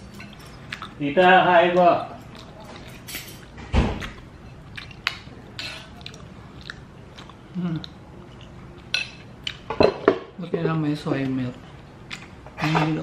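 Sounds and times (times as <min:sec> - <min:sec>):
person chewing: 0:00.1 - 0:01.0, 0:02.1 - 0:09.7.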